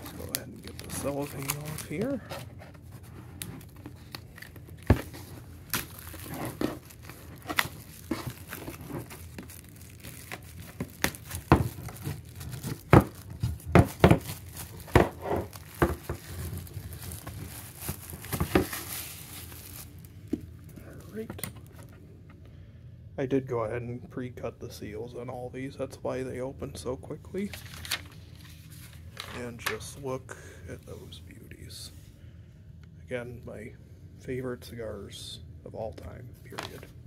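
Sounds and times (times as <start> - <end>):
cellophane crinkling: 0.0 - 21.9.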